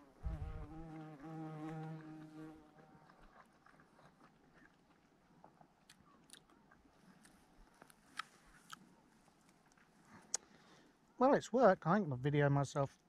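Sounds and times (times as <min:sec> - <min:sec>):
insect buzzing: 0:00.0 - 0:02.9
chewing: 0:01.0 - 0:10.5.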